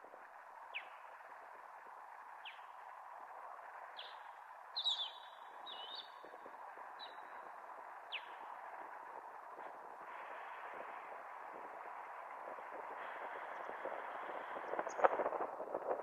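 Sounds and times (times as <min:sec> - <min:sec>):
strong wind hiss: 0:05.4 - 0:16.0.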